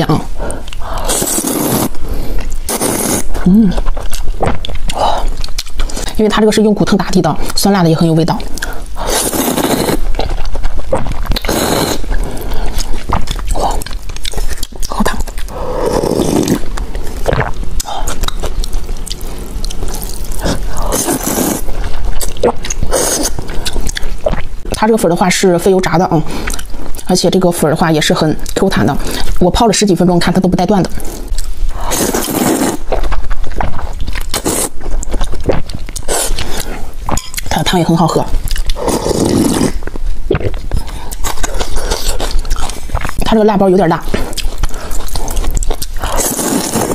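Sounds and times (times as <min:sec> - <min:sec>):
wet chewing: 0:00.0 - 0:24.9, 0:26.3 - 0:27.2, 0:30.7 - 0:46.9
noodles slurped: 0:00.7 - 0:03.5, 0:08.6 - 0:18.4, 0:19.9 - 0:24.5, 0:31.8 - 0:36.9, 0:38.6 - 0:43.3, 0:44.2 - 0:46.9.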